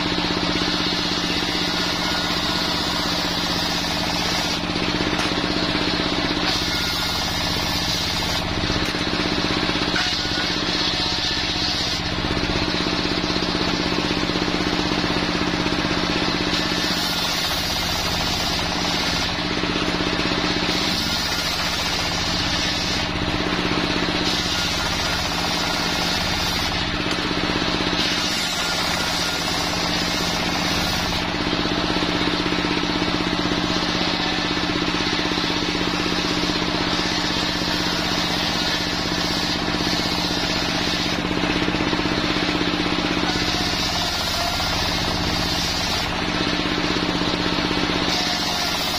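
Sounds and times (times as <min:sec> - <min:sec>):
saw blade cutting wood: 0:00.0 - 0:14.2, 0:16.0 - 0:48.9
engine droning: 0:00.0 - 0:48.3.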